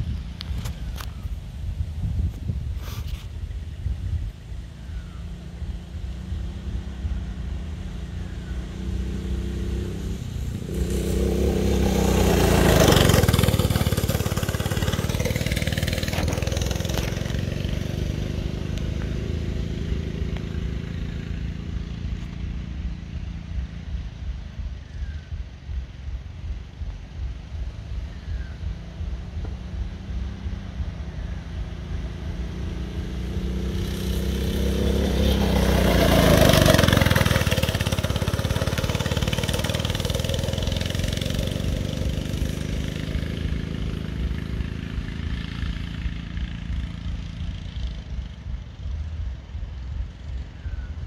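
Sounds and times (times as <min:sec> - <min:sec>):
off-road vehicle engine passing by: 0:00.0 - 0:51.0.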